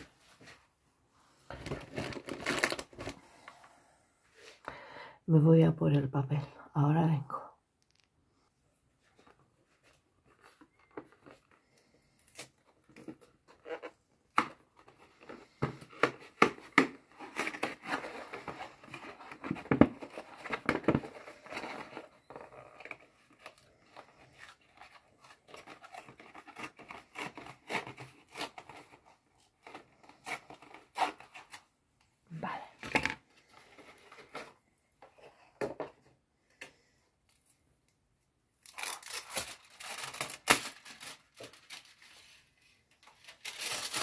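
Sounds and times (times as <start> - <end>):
foil crinkling and rustling: 1.5 - 3.2, 38.6 - 44.0.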